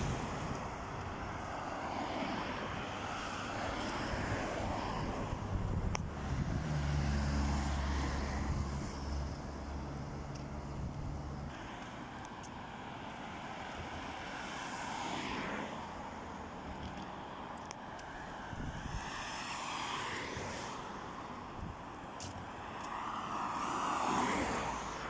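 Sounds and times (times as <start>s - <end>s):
road traffic noise: 0.0s - 25.0s
car passing close by: 1.5s - 10.3s, 14.4s - 15.8s, 18.8s - 21.0s, 22.6s - 25.0s.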